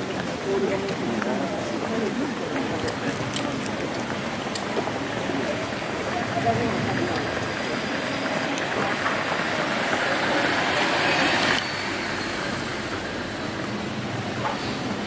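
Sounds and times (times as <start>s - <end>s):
outdoor background: 0.0s - 15.0s.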